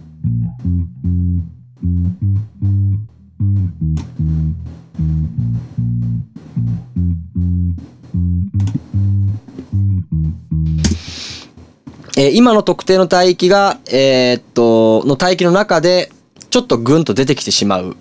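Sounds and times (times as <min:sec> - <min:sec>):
electric bass line: 0:00.0 - 0:11.4.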